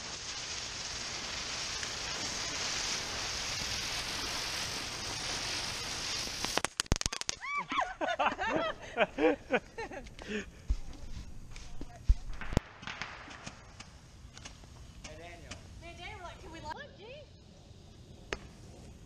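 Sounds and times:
sharp firework cracks: 0:00.0 - 0:07.6, 0:10.0 - 0:16.0
shrill firework squeals: 0:00.0 - 0:07.9
firework spinner hissing: 0:00.0 - 0:19.0.

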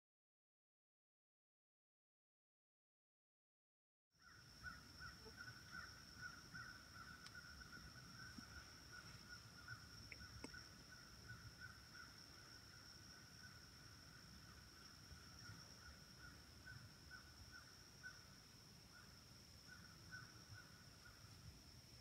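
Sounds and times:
pulsing insect chorus: 0:04.2 - 0:22.0.

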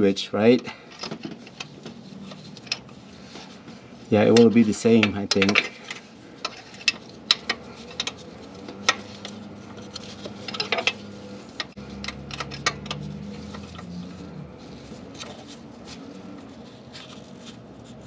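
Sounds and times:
wrench clinking on metal: 0:04.4 - 0:08.2.

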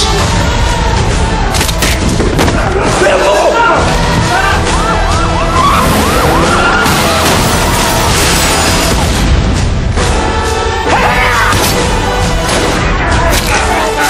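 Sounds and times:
action music and effects: 0:00.0 - 0:14.0
siren wailing: 0:04.6 - 0:08.9.

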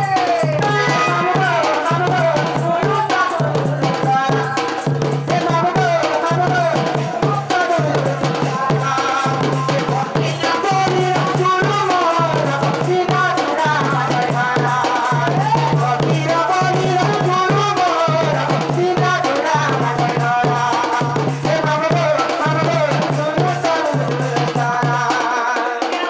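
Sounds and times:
drums: 0:00.0 - 0:26.0
rattling percussion: 0:00.0 - 0:26.0
wavering melody line: 0:00.6 - 0:01.7.

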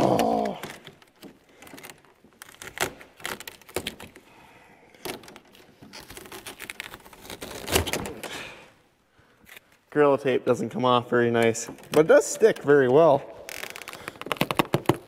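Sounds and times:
tape peeling off plastic: 0:00.0 - 0:04.3, 0:05.0 - 0:08.3, 0:13.3 - 0:15.0.

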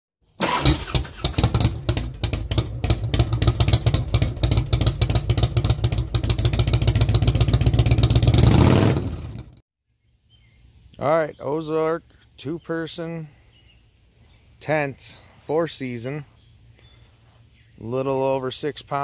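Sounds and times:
motorcycle engine revving: 0:00.4 - 0:09.6.

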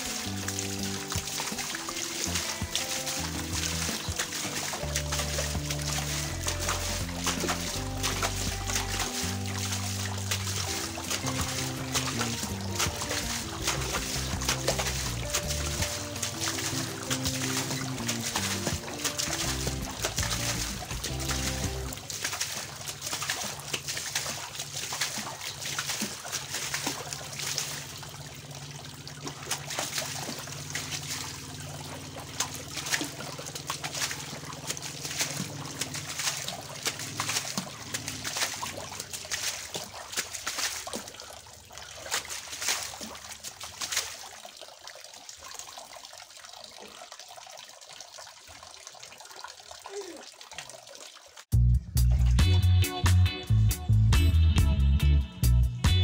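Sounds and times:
dustpan scooping through water: 0:00.0 - 0:44.2
water pouring from pipe: 0:00.0 - 0:51.5.

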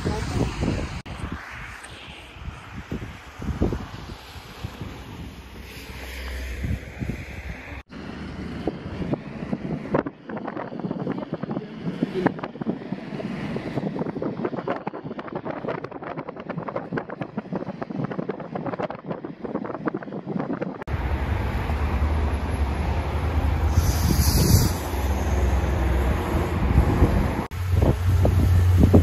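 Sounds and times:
tyre and road noise: 0:00.0 - 0:29.0
steady low rumble: 0:20.8 - 0:29.0.

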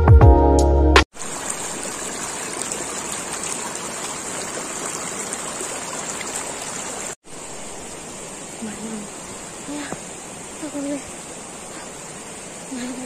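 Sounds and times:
background music: 0:00.0 - 0:01.0
stream running over stones: 0:01.1 - 0:13.0.

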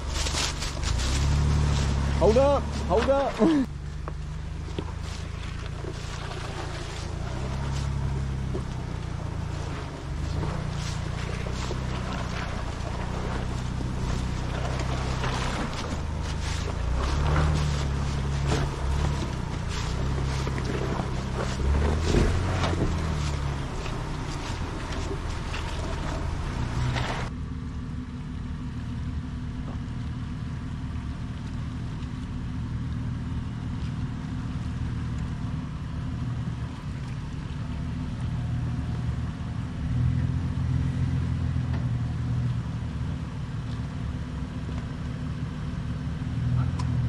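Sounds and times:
rushing outdoor noise: 0:00.0 - 0:27.4
suv engine running low: 0:00.0 - 0:47.0.

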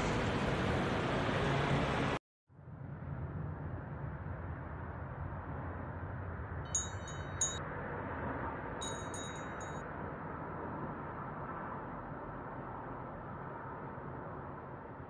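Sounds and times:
high bright chime strikes: 0:06.8 - 0:07.6, 0:08.8 - 0:09.8.

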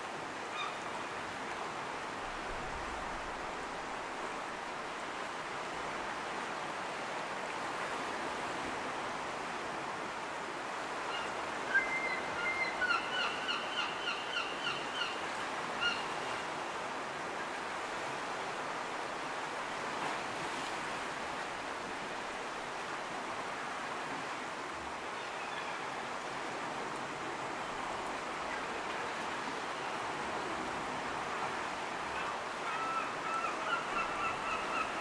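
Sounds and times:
surf washing on rocky shore: 0:15.0 - 0:35.0.

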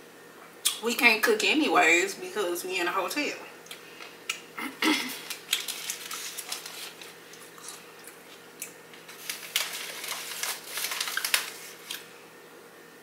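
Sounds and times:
plastic chip bag crinkling: 0:04.9 - 0:12.2
bread crust crunching: 0:05.1 - 0:12.1.

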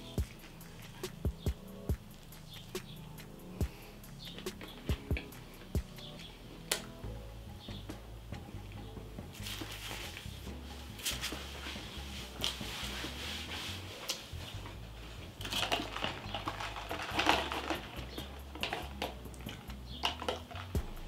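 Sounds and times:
chewing and mouth sounds: 0:00.0 - 0:06.3
soft beat with bass line: 0:00.0 - 0:15.4, 0:17.8 - 0:20.1, 0:20.7 - 0:21.0
straw stirring in plastic cup: 0:15.4 - 0:21.0.

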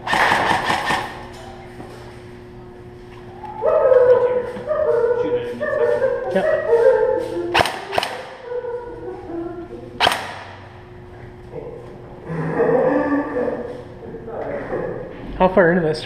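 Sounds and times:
sharp cracks: 0:00.0 - 0:01.2, 0:07.5 - 0:08.4, 0:10.0 - 0:10.8
tune of held notes: 0:03.4 - 0:10.0.

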